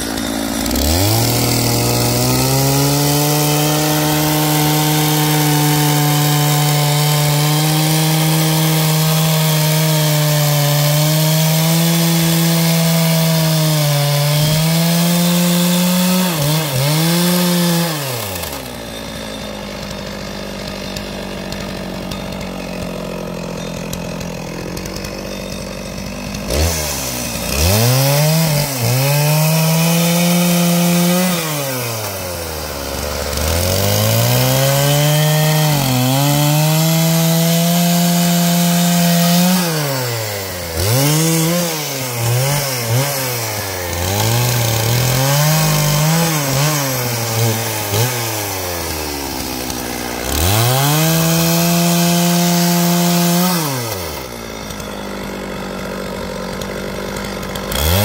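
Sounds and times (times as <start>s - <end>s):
chainsaw idling and revving: 0.0s - 58.0s.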